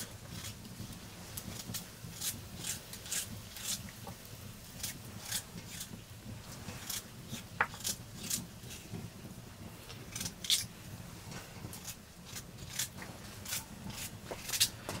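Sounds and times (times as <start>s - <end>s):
knife scraping slices off radish: 1.4s - 3.9s, 4.8s - 6.0s, 6.6s - 8.8s, 11.7s - 15.0s.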